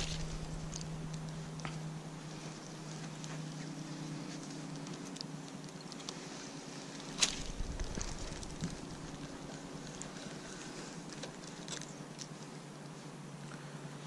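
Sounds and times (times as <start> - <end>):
low rumble: 0.0 - 3.0, 7.0 - 11.6
steady low hum: 0.0 - 14.0.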